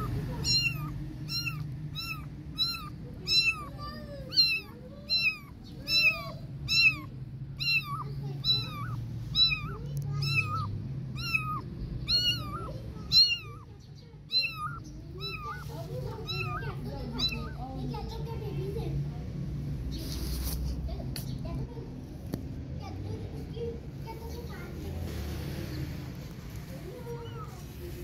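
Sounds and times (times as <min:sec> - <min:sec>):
kittens meowing: 0:00.0 - 0:18.2, 0:26.9 - 0:27.7.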